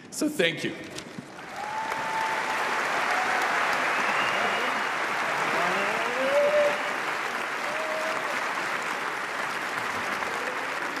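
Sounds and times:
audience applauding: 1.3 - 11.0
whoops: 1.4 - 8.6, 10.2 - 11.0.

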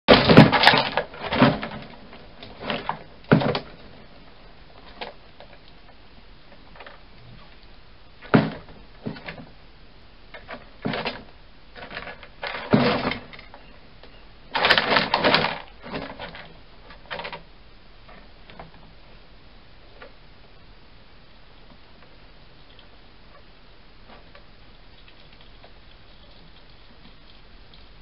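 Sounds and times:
hedgehog scuffling and rattling: 0.1 - 4.0, 10.4 - 13.6, 14.5 - 17.4.

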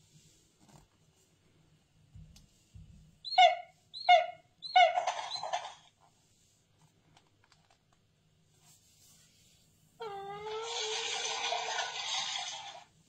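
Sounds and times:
electronic bird chirps: 3.2 - 5.8.

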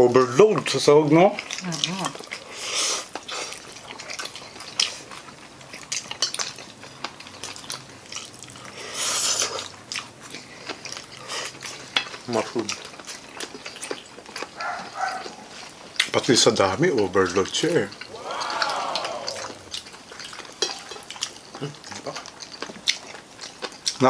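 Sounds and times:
noodle slurp: 8.8 - 9.7
forks scraping on plates: 20.2 - 21.6.

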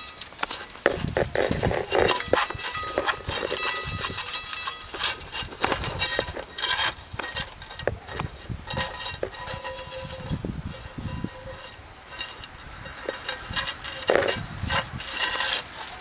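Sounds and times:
metal bowl clinking and rattling: 0.0 - 16.0.

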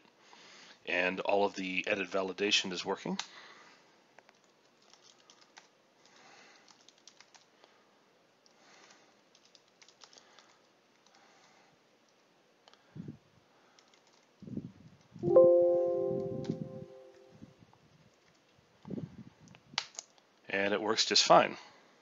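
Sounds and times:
keyboard typing: 4.3 - 5.7, 6.6 - 7.5, 9.3 - 11.1, 13.8 - 14.3.

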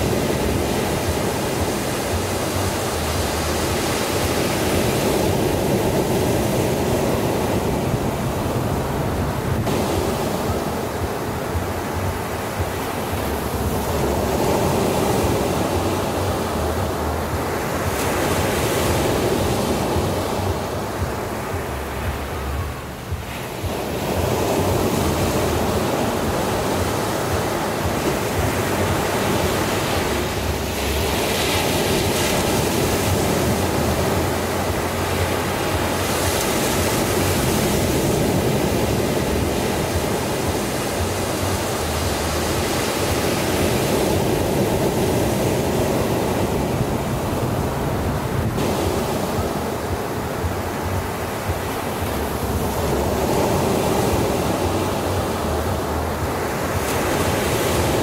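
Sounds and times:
ocean waves breaking on beach: 0.0 - 58.0.

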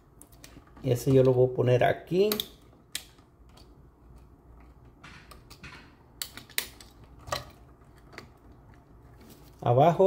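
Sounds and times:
wire clicking on switch terminal: 2.2 - 3.8.

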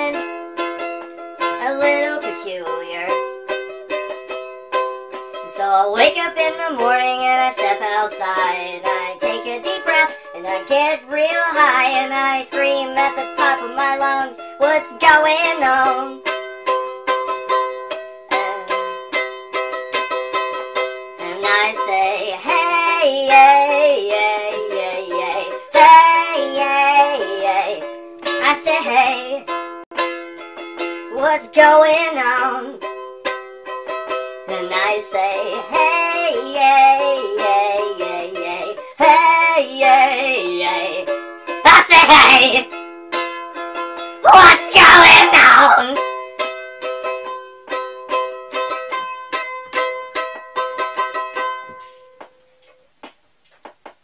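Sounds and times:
strummed stringed instrument: 0.0 - 54.0
sped up man singing: 34.5 - 41.1, 44.2 - 45.9.

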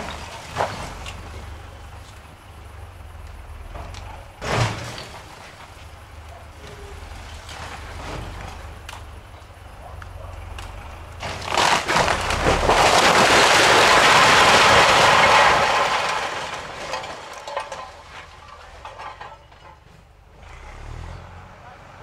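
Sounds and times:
house collapsing crash: 0.0 - 1.9, 3.8 - 6.1, 6.7 - 8.8, 11.1 - 20.1
cracks and falling debris: 0.0 - 2.4, 3.2 - 9.4, 10.0 - 20.1.

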